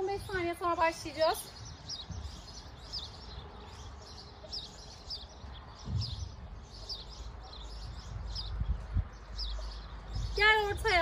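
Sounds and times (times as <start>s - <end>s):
small bird chirping: 1.4s - 10.8s
low thud: 5.8s - 6.6s.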